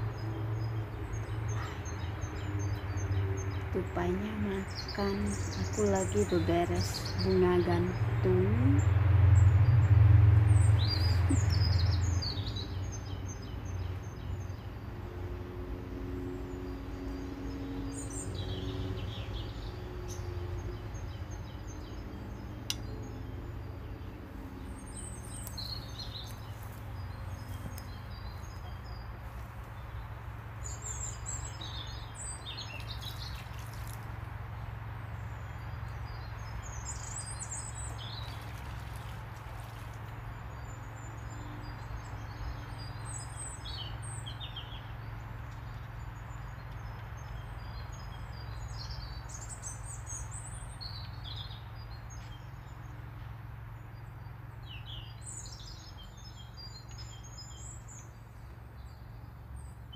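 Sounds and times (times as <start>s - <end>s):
steady low rumble: 0.0s - 42.3s
songbirds chirping: 0.0s - 59.9s.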